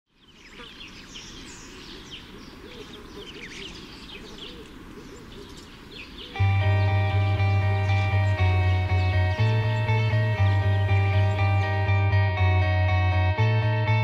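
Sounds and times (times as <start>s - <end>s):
small birds chirping: 0.1s - 12.1s
loud music with deep bass: 6.4s - 14.0s.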